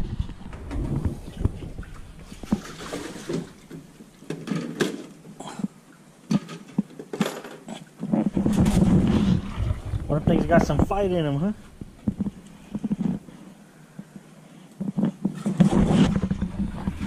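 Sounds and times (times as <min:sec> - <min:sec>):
low rumbling: 0:00.0 - 0:04.2, 0:08.3 - 0:13.0.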